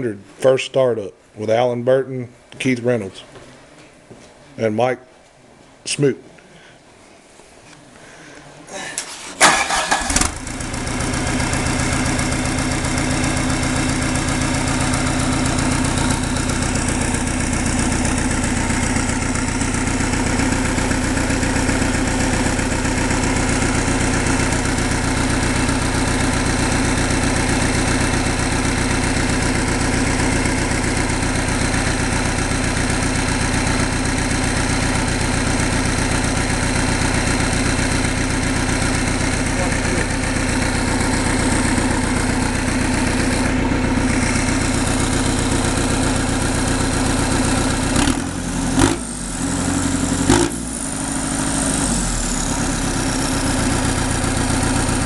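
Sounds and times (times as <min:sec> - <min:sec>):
diesel engine cranking: 0:09.0 - 0:20.3
diesel engine idling: 0:09.4 - 0:55.0.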